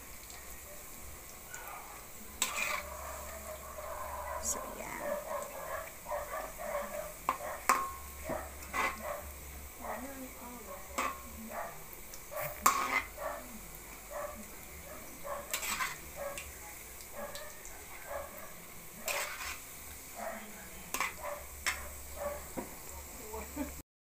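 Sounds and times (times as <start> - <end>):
food deep-frying in hot oil: 0.0 - 23.8
spatula scraping and tapping pan: 2.4 - 3.0, 7.2 - 9.1, 10.9 - 11.3, 12.6 - 13.2, 15.4 - 16.6, 19.0 - 19.7, 20.9 - 22.8.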